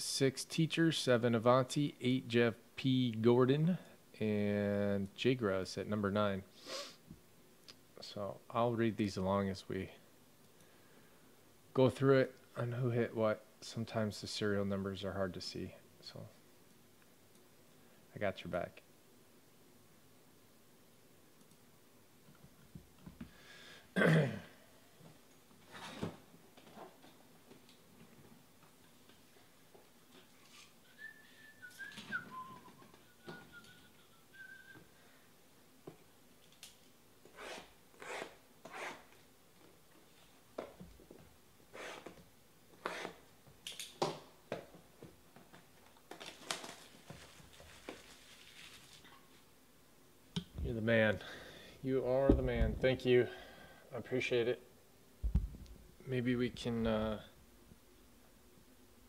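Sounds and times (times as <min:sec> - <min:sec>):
person clearing throat: 0:24.0 - 0:24.6
soft breathy noise: 0:51.2 - 0:52.5, 0:53.1 - 0:54.0.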